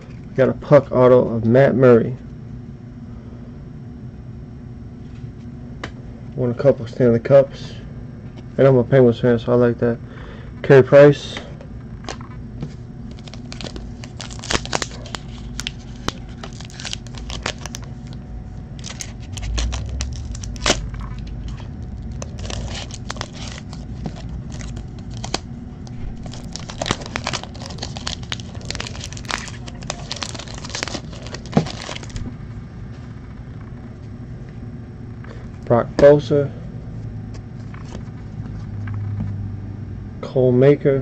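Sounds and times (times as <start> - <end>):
card pack wrapper tearing: 13.1 - 18.2, 18.8 - 32.2.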